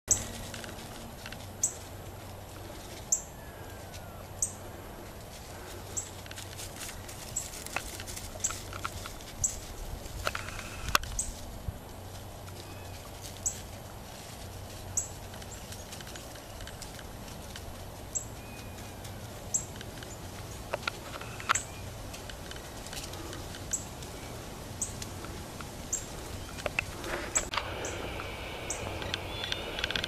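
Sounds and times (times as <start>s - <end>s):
steady low hum: 0.1s - 30.0s
soft clicks: 28.2s - 30.0s.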